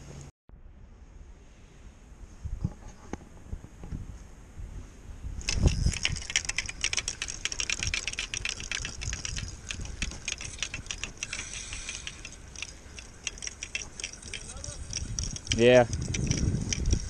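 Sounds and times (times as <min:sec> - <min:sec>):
fishing reel clicking: 0:05.4 - 0:17.0.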